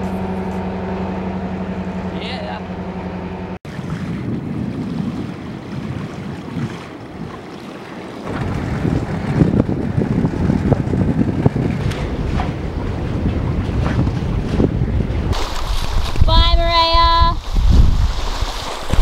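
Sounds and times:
sea water rushing around boat: 0:03.7 - 0:19.0
wind buffeting microphone: 0:03.7 - 0:19.0.

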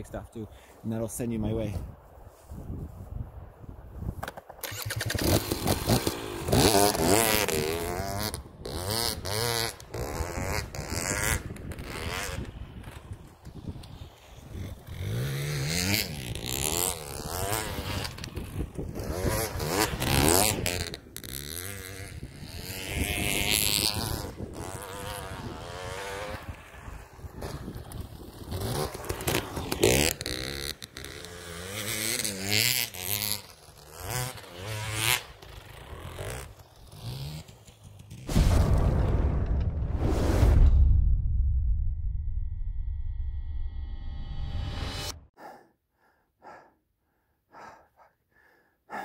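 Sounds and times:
dirt bike engine revving: 0:04.6 - 0:13.1, 0:13.9 - 0:38.2.

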